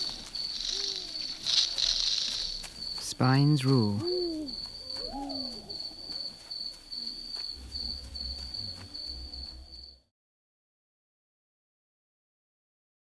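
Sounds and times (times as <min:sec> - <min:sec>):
crickets chirping: 0:00.0 - 0:10.1.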